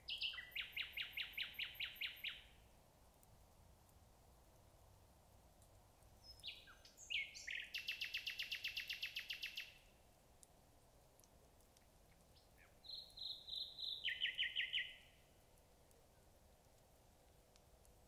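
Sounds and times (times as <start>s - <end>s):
nightingale singing: 0.0s - 2.6s, 6.2s - 9.9s, 12.1s - 15.2s.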